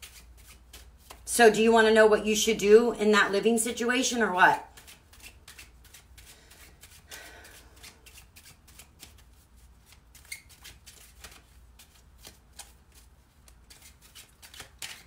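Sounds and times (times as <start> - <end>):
cards being shuffled: 0.0 - 1.3, 4.7 - 15.0.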